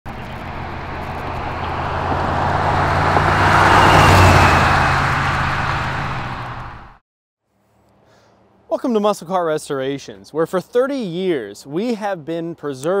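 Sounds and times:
car engine driving past: 0.1 - 7.0.

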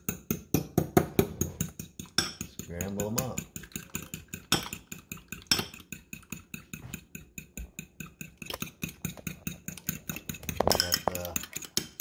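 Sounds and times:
fork clinking against glass bowl: 9.7 - 12.0.

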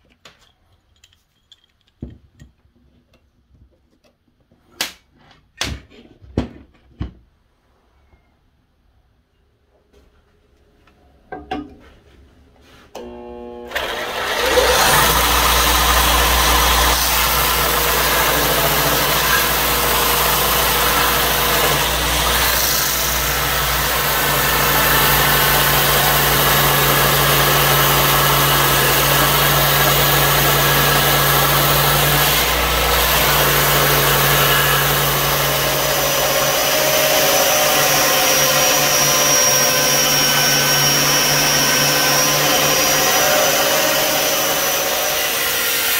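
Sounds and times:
belt grinder motor hum: 13.0 - 45.9
abrasive belt sanding wood: 14.4 - 45.9.

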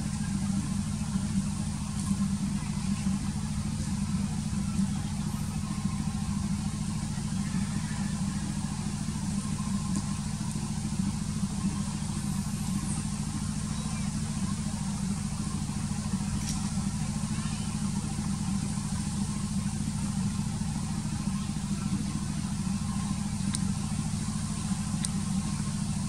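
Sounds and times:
engine running steadily: 0.0 - 26.0.

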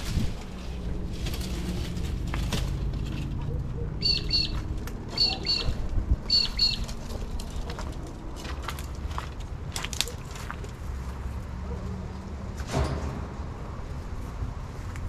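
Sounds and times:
bird chirping: 4.0 - 7.0.

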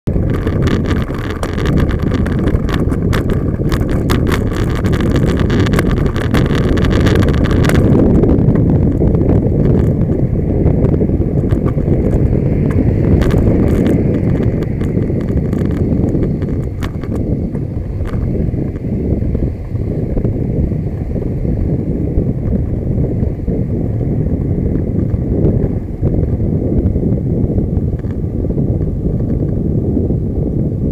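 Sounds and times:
road and engine rumble: 0.0 - 30.9
rapid clicking and rattling: 0.1 - 21.7.

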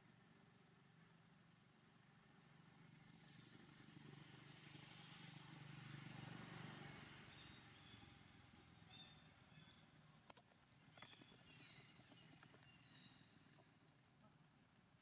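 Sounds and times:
passing vehicle engine: 2.4 - 9.8.

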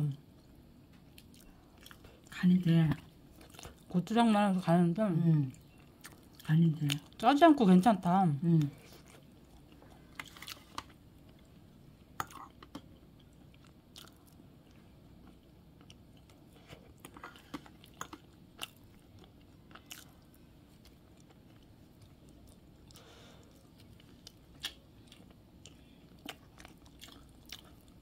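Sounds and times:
person chewing: 1.1 - 2.3, 3.3 - 3.9, 8.8 - 11.5, 12.1 - 28.0.

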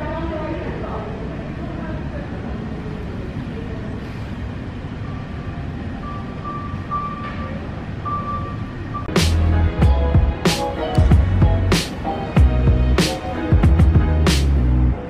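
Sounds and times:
low room rumble: 0.0 - 15.0
faint high-pitched tones: 4.9 - 9.1.

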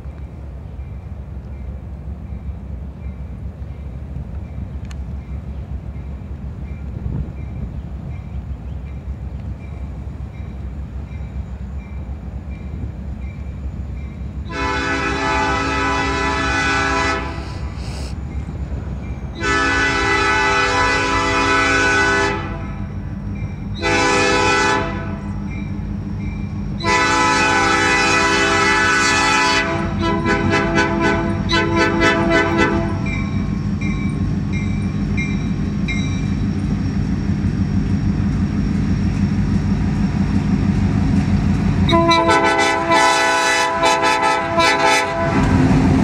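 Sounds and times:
locomotive air horn blasts: 14.5 - 18.1, 19.4 - 22.9, 23.8 - 25.3, 26.8 - 33.2, 41.9 - 45.6.

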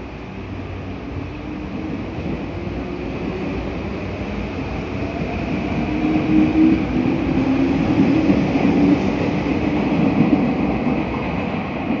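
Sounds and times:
train wheels on rail: 0.0 - 12.0.

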